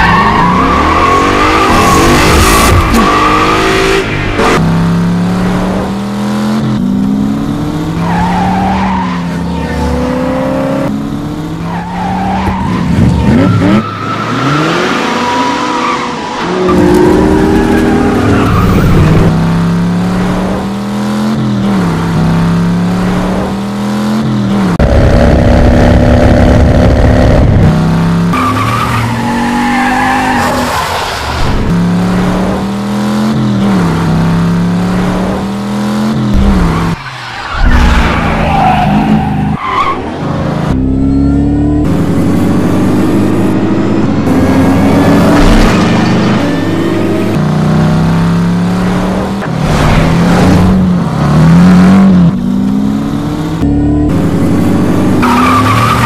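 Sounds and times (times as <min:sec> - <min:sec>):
tire squeals and skids: 0:00.0 - 0:04.2, 0:08.0 - 0:09.9, 0:11.6 - 0:19.3, 0:28.3 - 0:31.7, 0:36.5 - 0:40.3, 0:55.1 - 0:56.0
car engines revving: 0:00.0 - 0:56.0.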